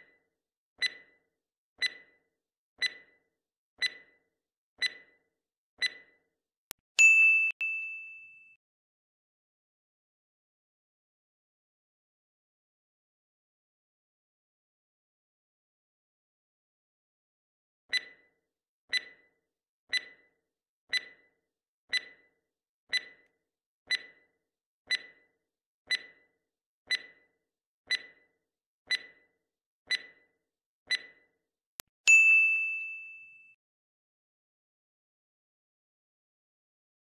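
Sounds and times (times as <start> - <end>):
timer ticking: 0.8 - 3.2, 3.8 - 4.2, 4.8 - 5.2, 5.8 - 6.2, 17.9 - 18.3, 18.9 - 23.3, 23.9 - 24.3, 24.9 - 31.9.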